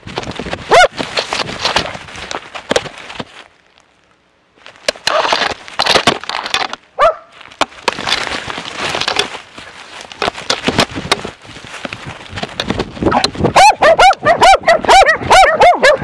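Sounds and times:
branches scraping and rustling: 0.0 - 15.9
short rising dog bark: 13.6 - 16.0.

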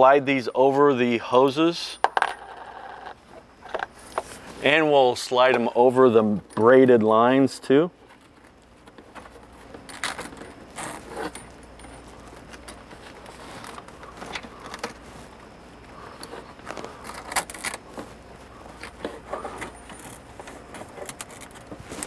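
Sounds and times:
small metal parts clinking and scraping: 1.9 - 4.3, 9.2 - 15.0.

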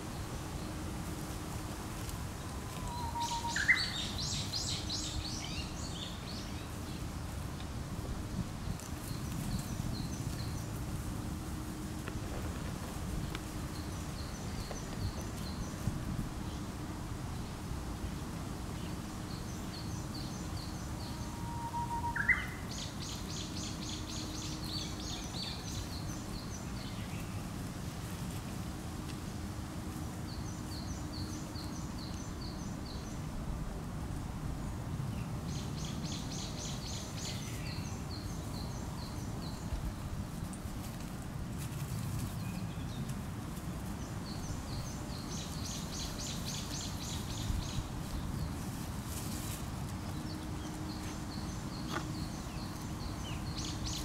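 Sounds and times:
low outdoor background noise: 0.0 - 54.0
songbird chirping: 2.0 - 7.4, 12.8 - 16.8, 17.5 - 27.5, 41.9 - 54.0.

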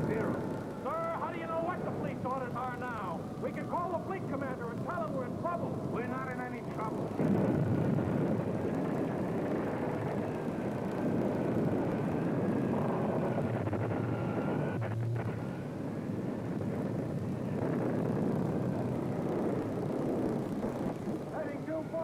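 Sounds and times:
storm wind howling: 0.0 - 22.0.

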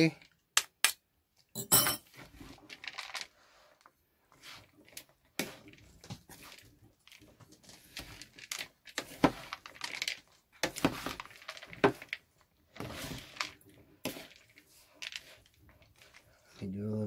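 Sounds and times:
spoon tossing wet salad: 4.4 - 16.6.

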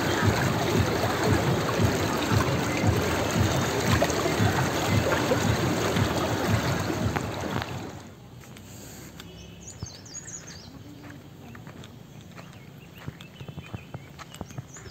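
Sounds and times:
river water rushing and splashing: 0.0 - 8.2
bird chirping: 9.1 - 14.9.

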